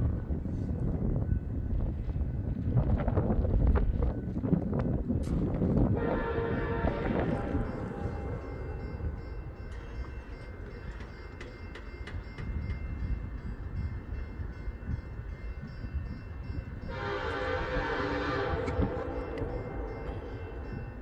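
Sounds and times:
locomotive air horn blast: 0:06.0 - 0:08.4, 0:16.9 - 0:20.3
crossing bell ringing: 0:06.0 - 0:21.0.

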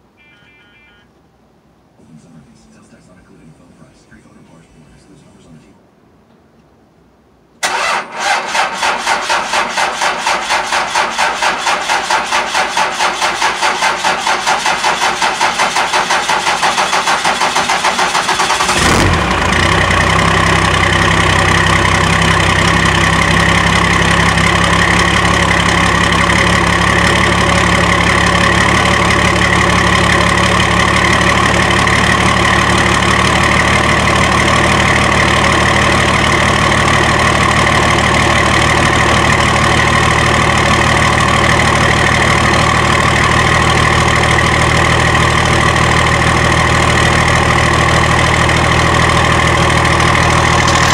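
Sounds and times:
diesel engine idling: 0:07.6 - 0:50.9
starter motor cranking: 0:50.2 - 0:50.9.

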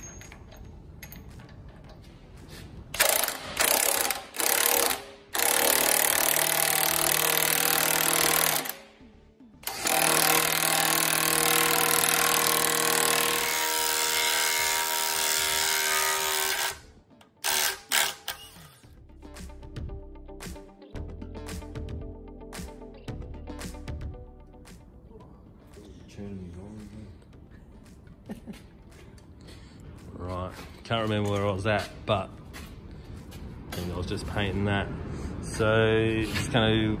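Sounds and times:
impact wrench hammering: 0:03.0 - 0:08.9, 0:09.6 - 0:16.8, 0:17.4 - 0:18.8.

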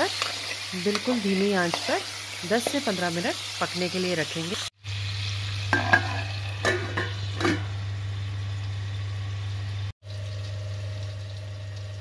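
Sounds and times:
faint sizzling: 0:00.0 - 0:12.0
metal lid clinking: 0:05.7 - 0:07.7.

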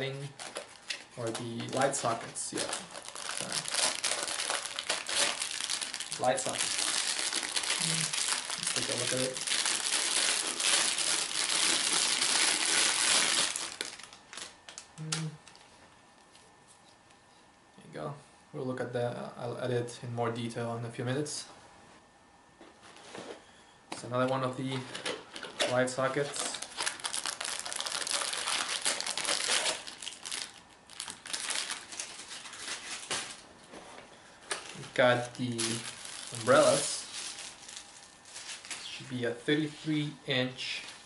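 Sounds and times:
plastic bag crinkling: 0:00.0 - 0:15.7, 0:24.7 - 0:33.5, 0:34.4 - 0:39.1.

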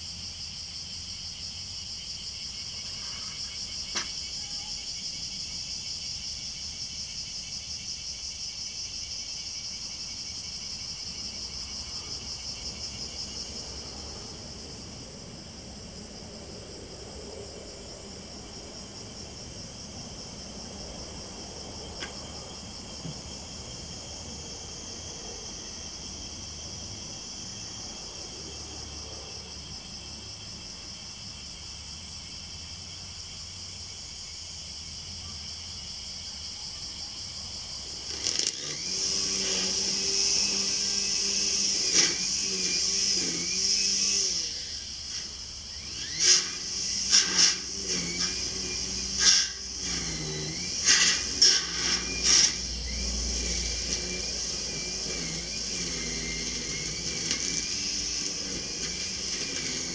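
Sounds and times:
cicadas droning: 0:00.0 - 0:59.9
small knocks: 0:03.9 - 0:04.2.

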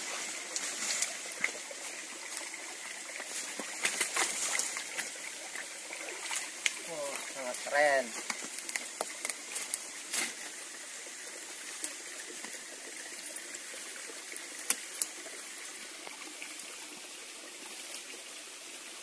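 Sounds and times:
running water: 0:00.0 - 0:19.0.

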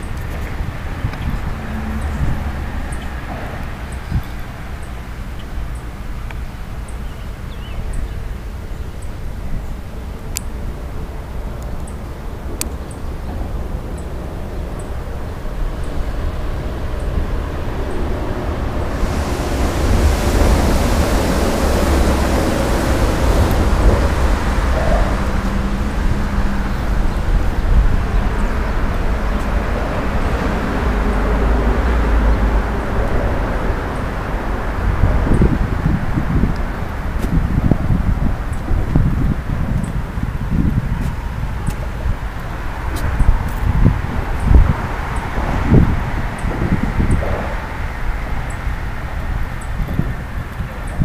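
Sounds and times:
faint steady hum: 0:00.0 - 0:51.0
steady low rumble: 0:00.0 - 0:51.0
wind noise on microphone: 0:00.0 - 0:51.0.

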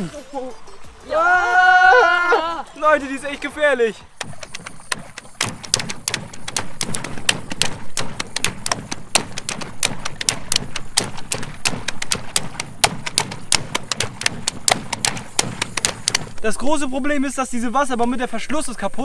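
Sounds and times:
sharp clicks: 0:04.1 - 0:16.5.

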